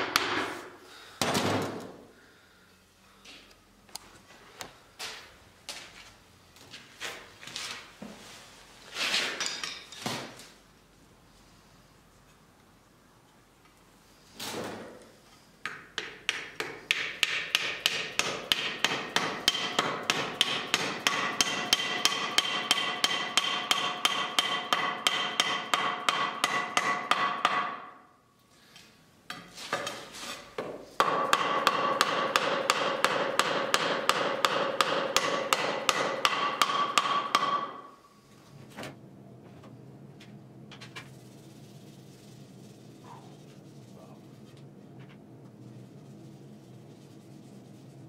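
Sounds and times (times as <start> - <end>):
hammer striking wooden handle: 0.0 - 0.5, 15.6 - 28.0, 30.6 - 37.9.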